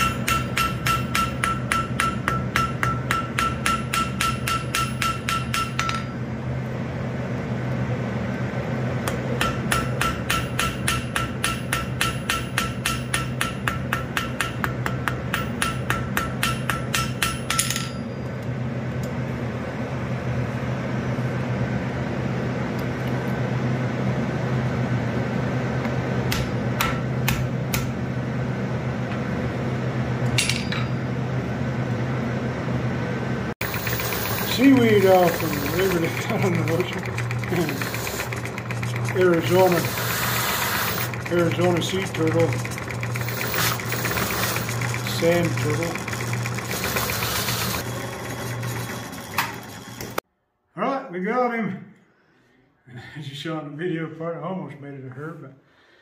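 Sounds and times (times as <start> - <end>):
anvil ringing: 0.0 - 6.2, 9.4 - 18.3, 30.4 - 31.2
hammer striking steel on anvil: 0.0 - 6.2, 9.0 - 18.3, 26.3 - 28.0, 30.3 - 31.1.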